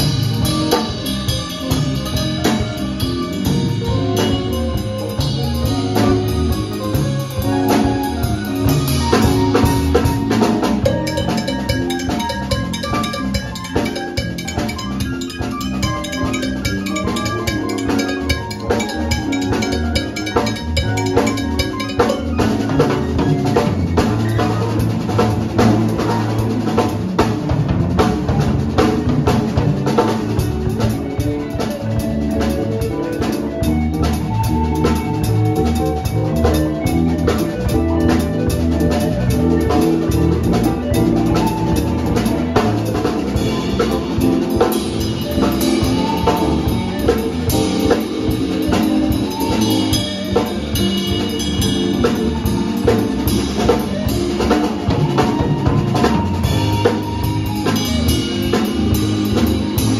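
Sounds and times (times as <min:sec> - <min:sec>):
drum kit: 0:00.0 - 0:59.9
small live band playing: 0:00.0 - 0:59.9.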